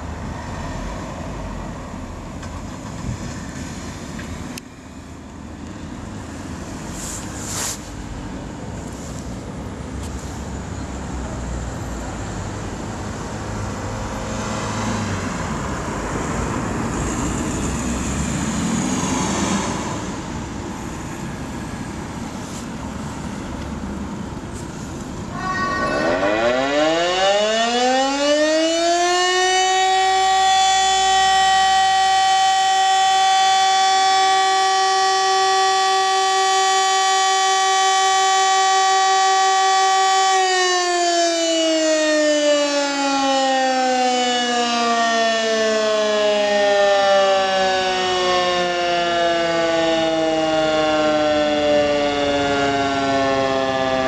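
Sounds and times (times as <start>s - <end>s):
background noise: 0.0s - 54.0s
civil defence siren: 11.4s - 22.3s, 25.3s - 54.0s.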